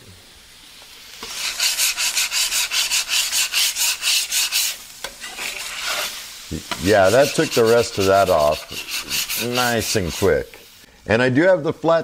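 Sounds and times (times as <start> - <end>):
scraper scraping griddle: 1.2 - 10.6.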